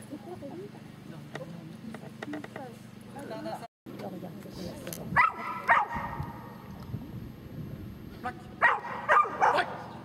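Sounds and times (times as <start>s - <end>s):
dog barking: 5.2s - 6.4s, 8.6s - 9.9s.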